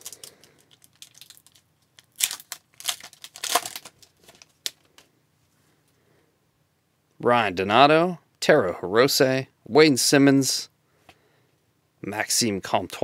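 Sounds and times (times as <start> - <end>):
foil wrapper tearing and crinkling: 0.0 - 4.8.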